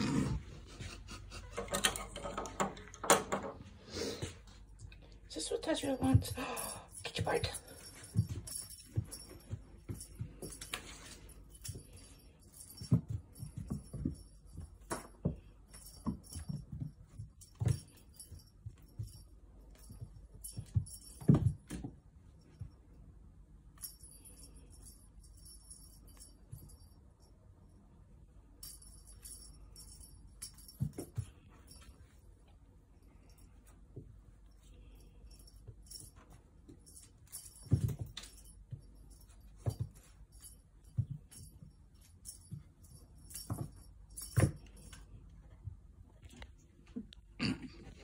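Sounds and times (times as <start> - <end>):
toy bell jingling: 5.7 - 21.8, 23.7 - 27.0, 28.6 - 31.9, 34.6 - 45.1.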